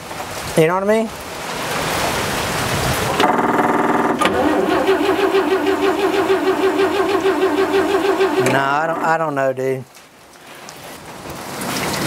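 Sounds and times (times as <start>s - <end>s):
engine cranking without firing: 3.1s - 9.4s.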